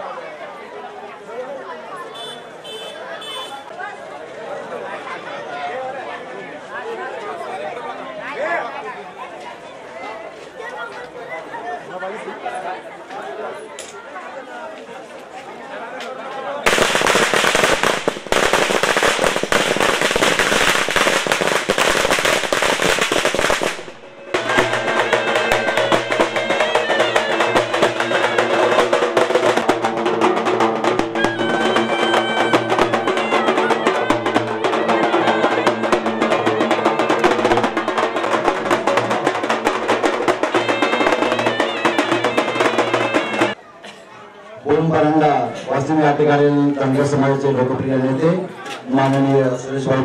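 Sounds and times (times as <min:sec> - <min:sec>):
firecrackers crackling: 0:16.6 - 0:30.0
large drums beaten with sticks: 0:16.7 - 0:43.6
small brass horn tune: 0:24.1 - 0:39.3.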